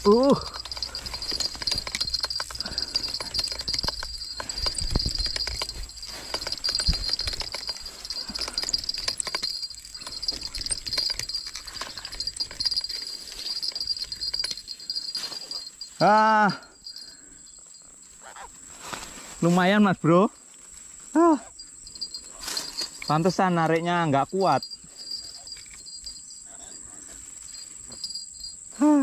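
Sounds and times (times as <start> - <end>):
fishing reel clicking: 0.0 - 15.2
low bumps: 0.0 - 16.1
high insect drone: 0.0 - 29.0.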